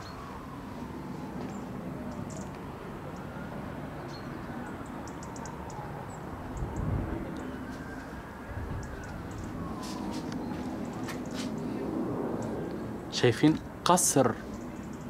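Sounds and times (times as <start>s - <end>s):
small birds chirping: 4.0s - 7.6s.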